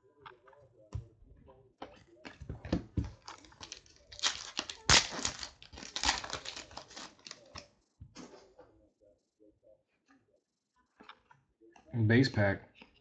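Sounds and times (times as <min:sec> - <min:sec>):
cards rustling: 0:03.0 - 0:07.7
wrapper tearing and crinkling: 0:03.2 - 0:07.7.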